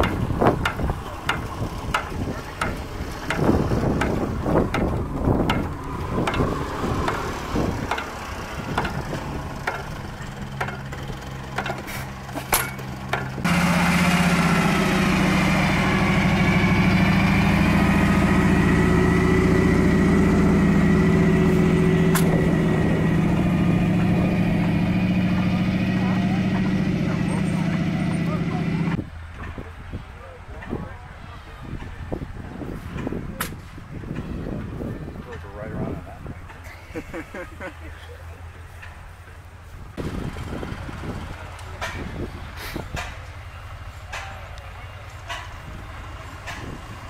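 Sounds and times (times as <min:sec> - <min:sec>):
stationary engine chugging and clicking: 0:00.0 - 0:29.6, 0:40.1 - 0:43.4, 0:44.1 - 0:45.8, 0:46.4 - 0:47.0
engine running steadily: 0:00.0 - 0:47.0.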